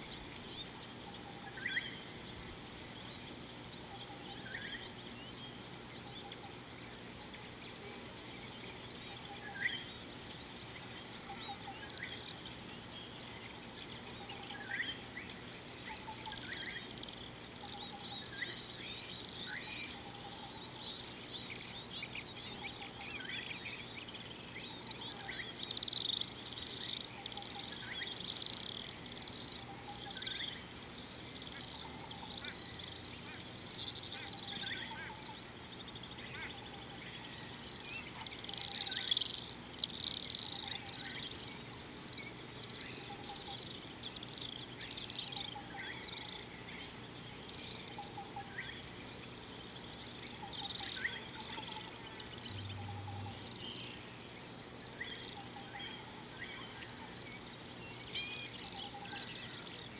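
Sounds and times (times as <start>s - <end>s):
rapid bird chirping: 3.0s - 48.8s.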